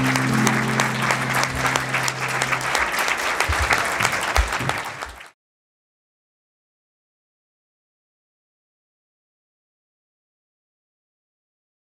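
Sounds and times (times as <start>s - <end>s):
held musical chord: 0.0s - 3.4s
audience applauding: 0.0s - 5.4s.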